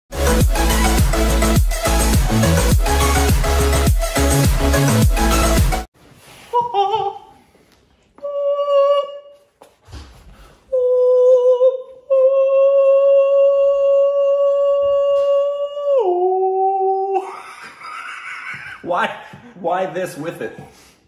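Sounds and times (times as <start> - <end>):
man singing in falsetto: 6.5 - 7.4, 8.2 - 9.5, 10.7 - 17.3.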